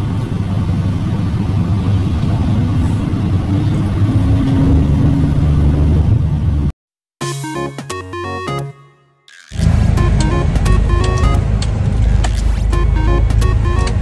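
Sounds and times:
car engine running inside cabin: 0:00.0 - 0:06.7, 0:09.6 - 0:14.0.

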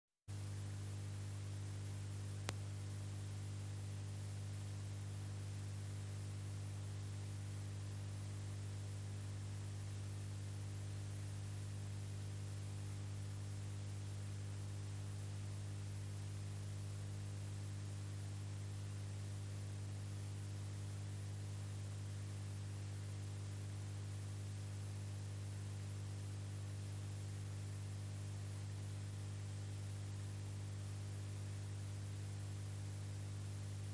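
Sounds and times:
electrical hum with hiss: 0:00.3 - 0:33.9
faint click: 0:02.4 - 0:02.7.

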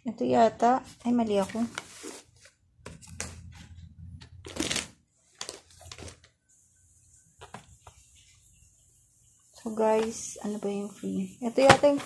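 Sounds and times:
packaging rustling and crinkling: 0:04.4 - 0:06.3.

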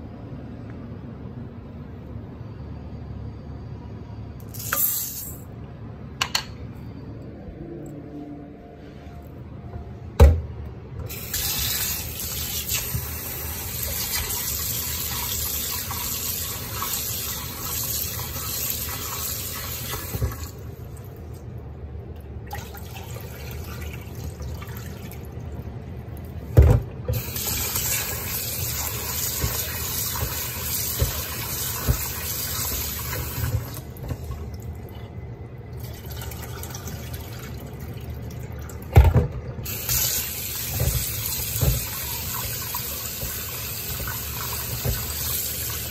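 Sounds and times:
tap water running into bowl: 0:27.1 - 0:34.7, 0:38.3 - 0:45.9.

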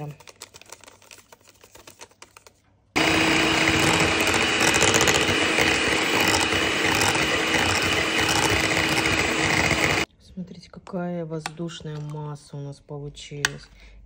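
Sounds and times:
electric mixer humming: 0:03.0 - 0:10.1.

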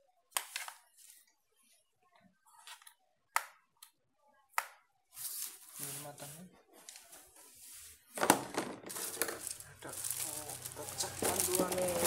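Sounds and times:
rustling: 0:08.9 - 0:12.0.

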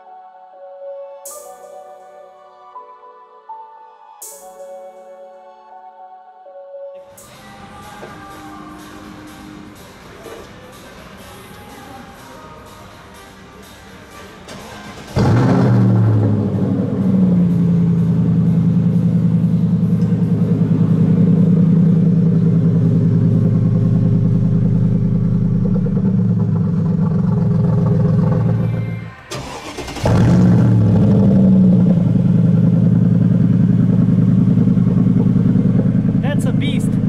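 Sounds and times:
car engine starting and idling: 0:14.5 - 0:37.0.

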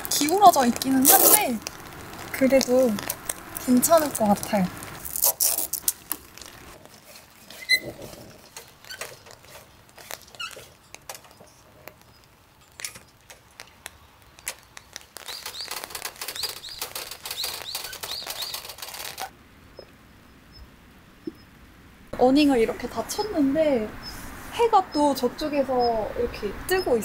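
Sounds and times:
rapid ticking with squeaks: 0:00.0 - 0:20.6, 0:24.9 - 0:27.0
awning parts clicking and rattling: 0:05.1 - 0:19.3.

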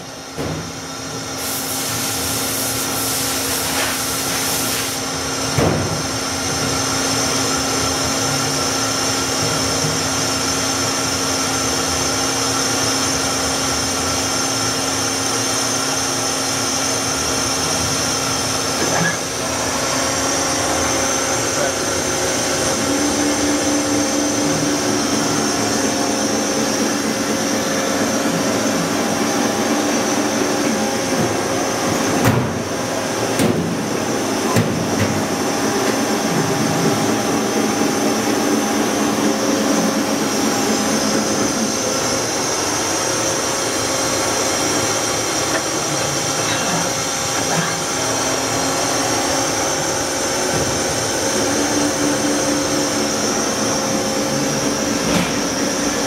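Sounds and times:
machine-shop equipment whirring: 0:00.0 - 0:56.0.

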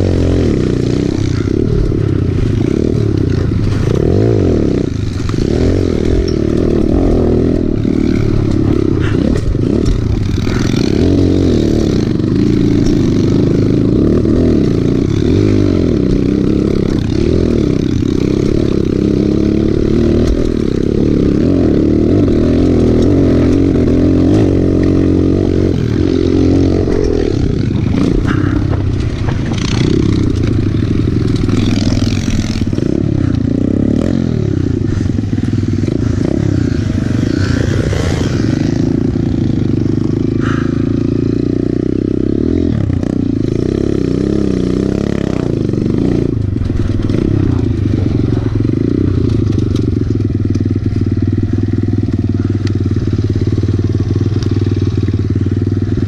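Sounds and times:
dirt bike engine revving: 0:00.0 - 0:56.0
bike knocks and rattles: 0:00.8 - 0:33.6.

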